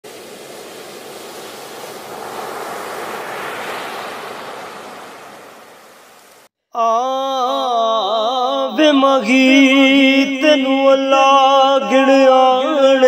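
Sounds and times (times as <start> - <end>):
waves breaking on a beach: 0.0 - 6.5.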